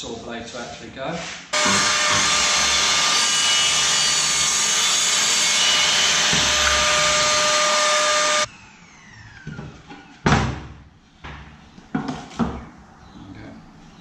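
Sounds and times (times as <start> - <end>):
circular saw cutting plywood: 1.6 - 9.4.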